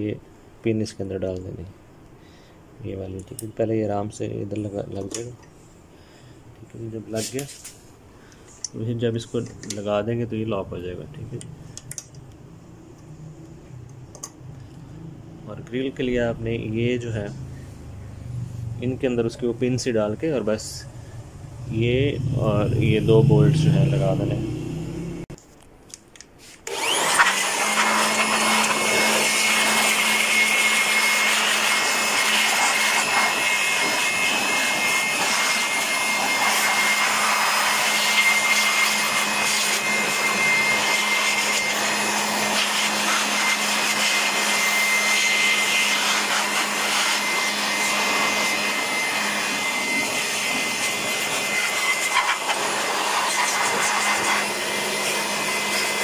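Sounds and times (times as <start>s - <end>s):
electric blower running: 21.4s - 25.3s, 26.6s - 56.0s.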